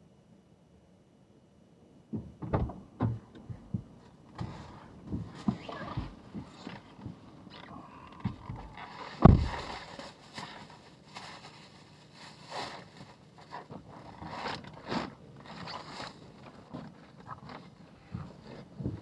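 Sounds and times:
plastic bag rustling: 8.7 - 17.8.

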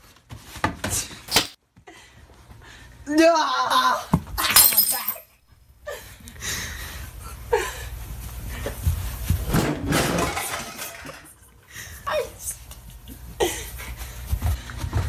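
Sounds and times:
scuffling and thumps on floor: 8.6 - 11.2.

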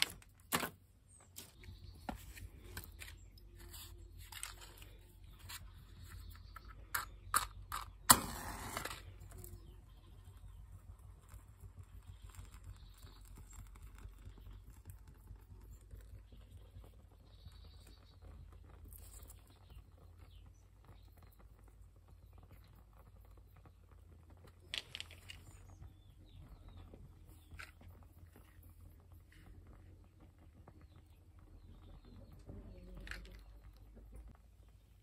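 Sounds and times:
twigs crackling in fire: 0.0 - 35.0
sharp crack: 7.0 - 9.2.

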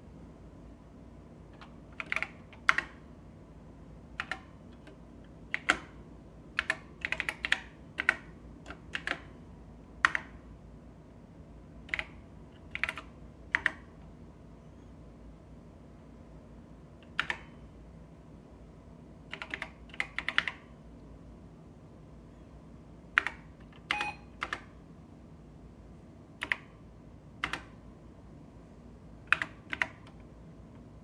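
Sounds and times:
keyboard keystroke clicks: 1.6 - 3.0, 4.2 - 5.9, 6.6 - 9.4, 10.0 - 10.4, 11.9 - 13.9, 17.0 - 17.6, 19.3 - 20.6, 23.1 - 24.7, 26.4 - 26.7, 27.4 - 27.8, 29.3 - 30.2.

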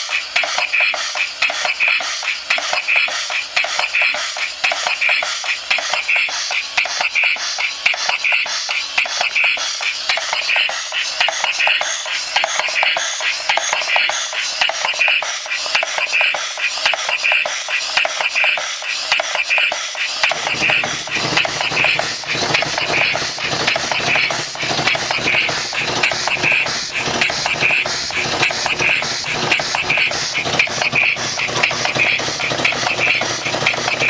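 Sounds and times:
compressed-air engine running: 20.1 - 34.0.

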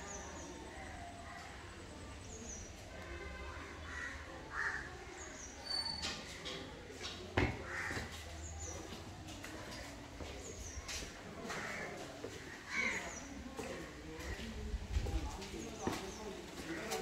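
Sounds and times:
crow cawing: 3.8 - 4.9, 7.6 - 8.2, 12.6 - 13.1.

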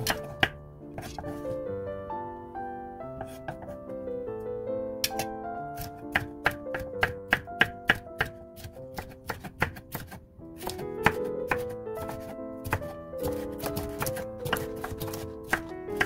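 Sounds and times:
knife knocking wooden board: 0.0 - 1.4, 3.2 - 3.8
background music: 0.0 - 16.0.

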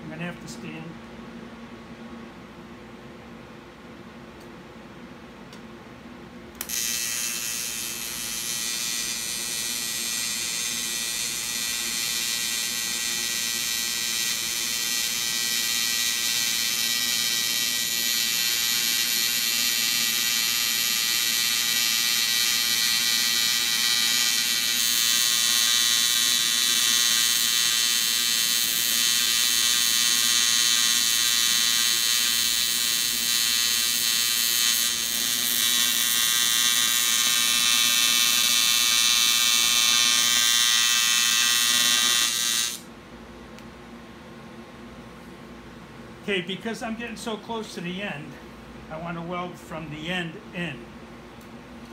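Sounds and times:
arc welder buzzing: 6.4 - 43.0.

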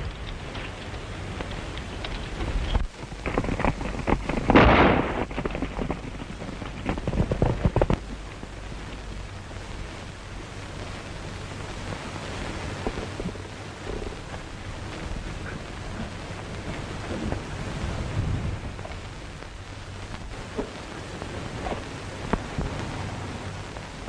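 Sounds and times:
hooves clattering on rocky ground: 0.0 - 9.2
film soundtrack hiss: 0.0 - 24.0.

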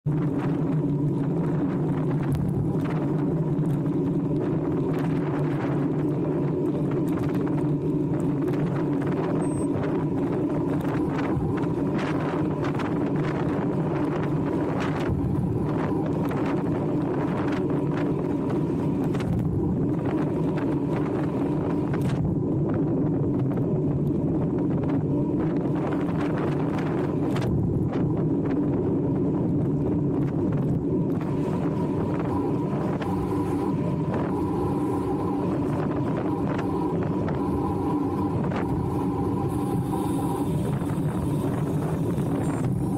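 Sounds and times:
bike tyres roaring on tarmac: 0.0 - 42.9
wind buffeting microphone: 0.0 - 42.9.

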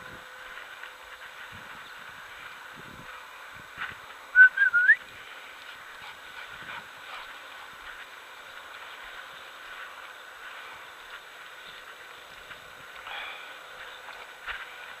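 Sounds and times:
short rising whistle: 4.4 - 5.0.

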